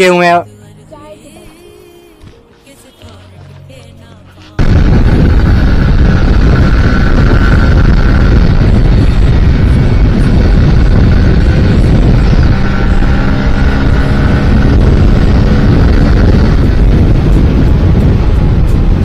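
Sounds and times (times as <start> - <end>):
motorcycle engine running: 4.6 - 19.0
wind rushing over microphone: 4.6 - 19.0.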